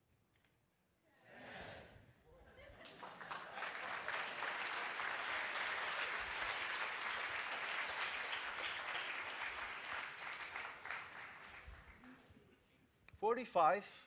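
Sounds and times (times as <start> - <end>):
audience applauding: 2.8 - 12.3.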